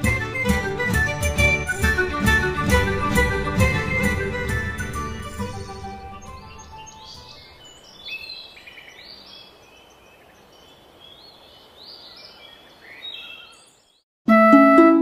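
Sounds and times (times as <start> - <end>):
birds chirping: 3.0 - 14.0.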